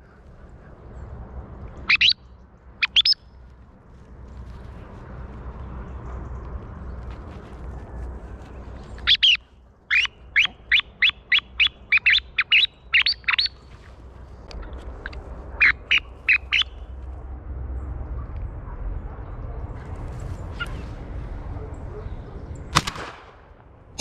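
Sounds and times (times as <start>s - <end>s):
low background rumble: 0.0s - 24.0s
small bird calling: 1.8s - 2.2s, 2.8s - 3.2s, 8.8s - 14.0s, 14.6s - 16.8s.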